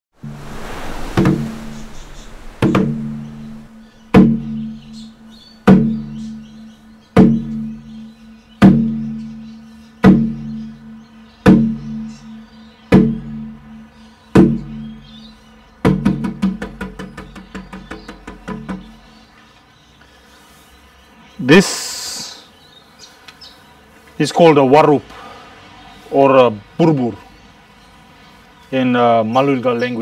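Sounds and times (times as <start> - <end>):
hand drum struck deep tone: 0.2 - 6.4, 7.2 - 7.9, 8.6 - 9.4, 10.0 - 13.6, 14.4 - 15.0, 15.9 - 18.9.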